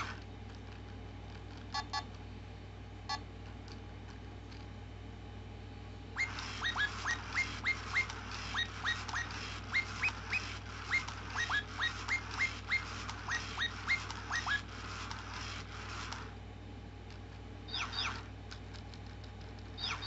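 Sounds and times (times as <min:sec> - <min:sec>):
toy electronic chirps: 0:06.2 - 0:16.3, 0:17.7 - 0:18.3, 0:19.8 - 0:20.0.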